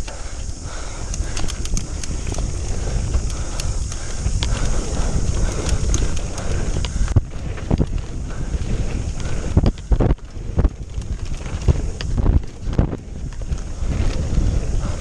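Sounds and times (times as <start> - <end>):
high hiss: 0.0 - 10.8
bike rattling over bumps: 0.0 - 15.0
bike tyres rumbling on dirt: 0.0 - 15.0
wind on microphone: 0.0 - 15.0.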